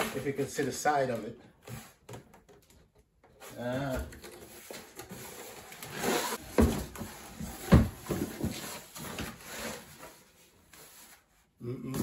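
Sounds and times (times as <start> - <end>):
cardboard packaging rustling: 3.6 - 11.2
knocks and thumps: 6.4 - 8.6.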